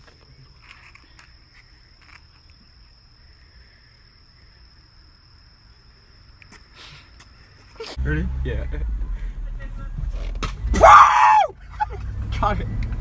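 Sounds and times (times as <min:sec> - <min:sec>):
night insects chorus: 0:00.0 - 0:08.0.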